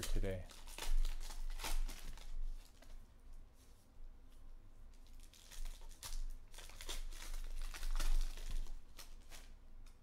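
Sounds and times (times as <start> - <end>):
wrapper tearing and crinkling: 0.0 - 3.0, 5.0 - 9.6.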